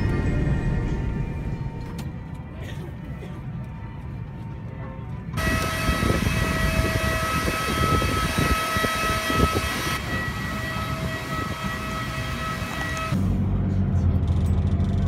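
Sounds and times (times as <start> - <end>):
jet turbine whine: 0.0 - 13.9
wind buffeting microphone: 5.4 - 11.9
rushing noise: 5.4 - 13.5.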